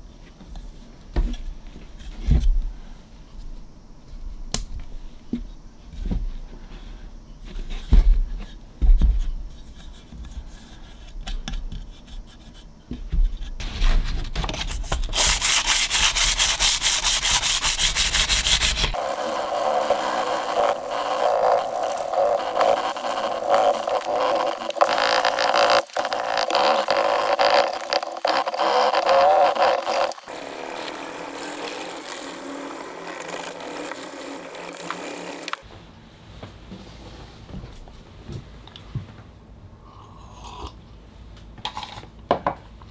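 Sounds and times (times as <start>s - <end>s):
sandpaper rubbing on resin: 15.0s - 35.6s.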